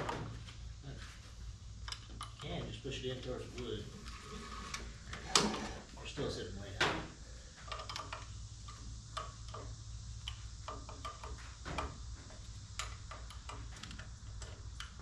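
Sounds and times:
low steady hum: 0:00.0 - 0:15.0
hand tools clicking on metal: 0:07.6 - 0:11.9, 0:12.8 - 0:15.0.

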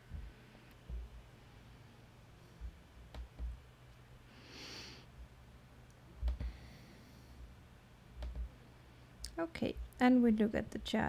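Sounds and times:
low steady hum: 0:00.0 - 0:11.0
soft breath: 0:04.3 - 0:05.1, 0:06.4 - 0:07.6
computer mouse clicks: 0:08.2 - 0:08.5.

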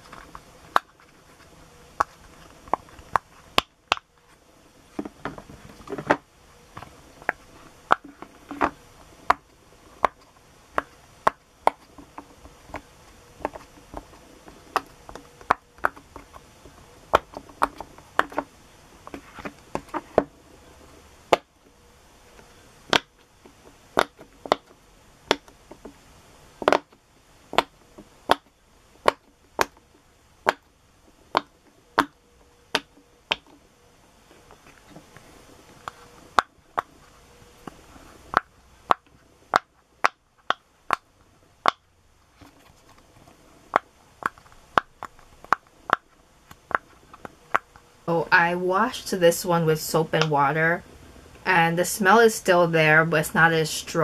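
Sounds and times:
pop-it toy bubbles popping: 0:22.9 - 0:23.1.

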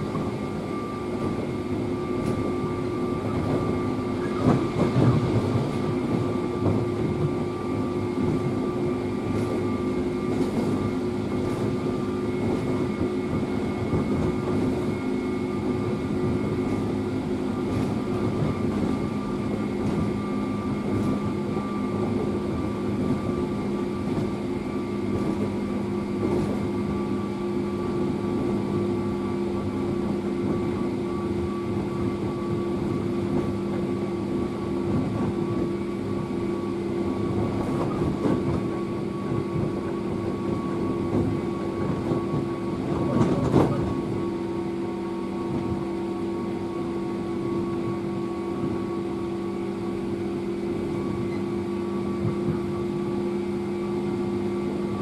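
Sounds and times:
train wheels rumbling: 0:00.0 - 0:53.6
steady electric train tones: 0:00.0 - 0:55.0.

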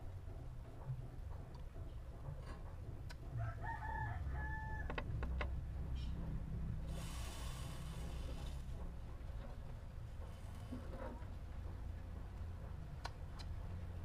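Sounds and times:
rooster crowing: 0:03.4 - 0:05.1.

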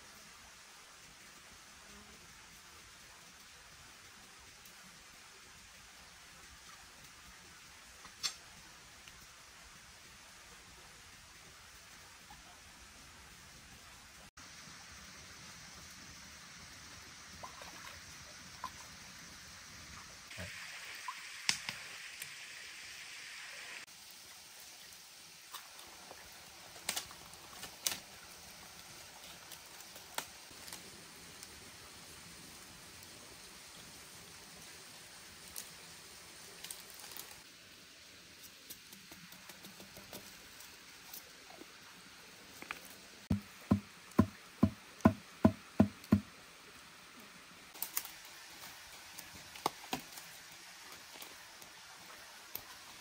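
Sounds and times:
faint stream hiss: 0:00.0 - 0:53.0
leaves snapping off a branch: 0:08.1 - 0:08.4, 0:26.8 - 0:28.1
hollow bamboo knocks: 0:43.3 - 0:46.3.

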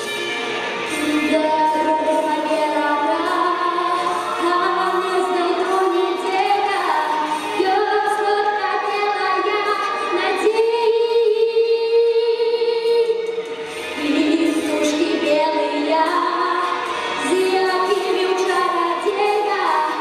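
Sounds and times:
backing music: 0:00.0 - 0:20.0
boy singing into microphone: 0:00.9 - 0:13.2, 0:14.0 - 0:20.0.

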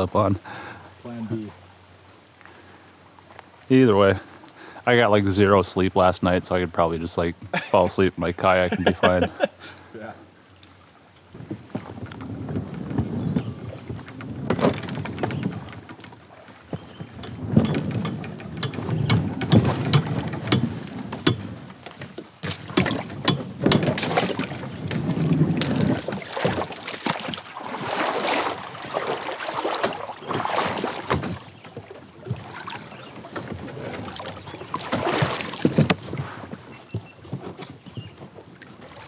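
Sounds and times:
water washing against hull: 0:07.8 - 0:39.0
paddle strokes splashing: 0:08.8 - 0:39.0
knocks and clunks on kayak hull: 0:11.3 - 0:39.0.

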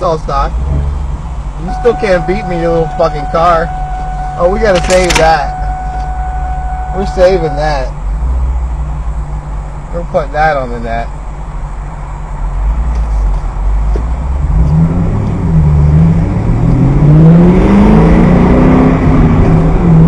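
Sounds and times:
car engine accelerating: 0:12.7 - 0:20.0.

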